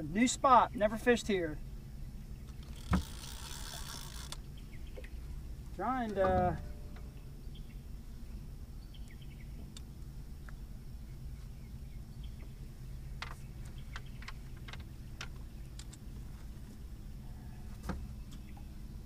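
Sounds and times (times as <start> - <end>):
low hum: 0.0 - 19.0
fishing reel clicking: 2.6 - 4.4.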